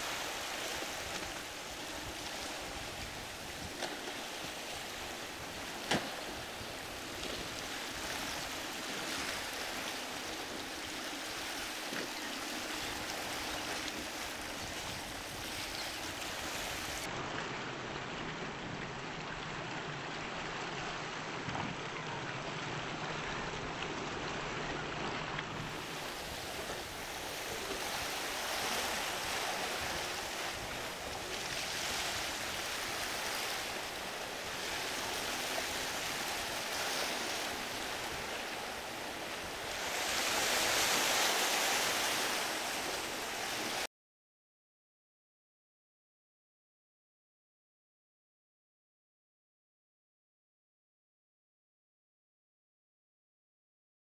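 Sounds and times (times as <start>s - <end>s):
faint boat engine hum: 0.0s - 43.8s
surf and waves washing: 0.0s - 43.9s.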